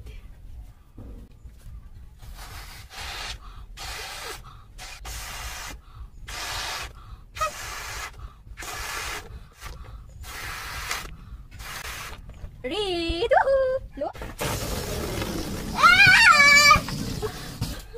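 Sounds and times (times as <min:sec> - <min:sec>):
breath puffs into balloon: 0:02.3 - 0:12.3, 0:16.7 - 0:17.9.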